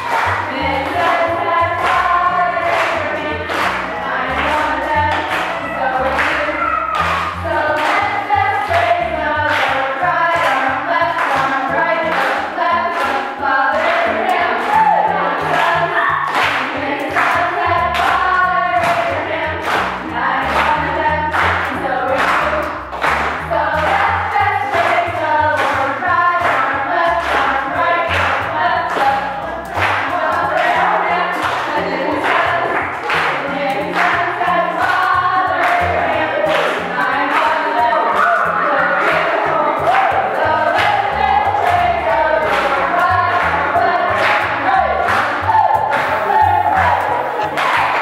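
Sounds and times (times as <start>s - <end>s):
bass line: 0.0s - 48.0s
choir singing: 0.0s - 48.0s.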